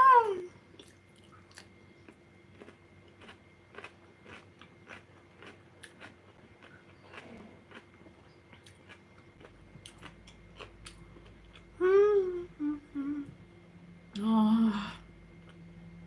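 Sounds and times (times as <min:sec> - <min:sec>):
woman humming: 0:00.0 - 0:00.5, 0:11.8 - 0:13.4, 0:14.2 - 0:15.1
eating sounds: 0:00.8 - 0:11.8.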